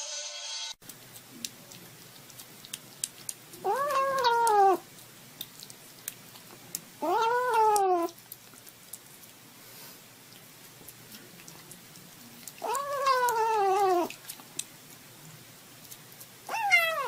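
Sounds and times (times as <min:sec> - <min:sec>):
kitten wailing meows: 0:03.6 - 0:04.8, 0:07.0 - 0:08.2, 0:12.6 - 0:14.1, 0:16.5 - 0:17.0
faint small clicks: 0:07.7 - 0:09.0.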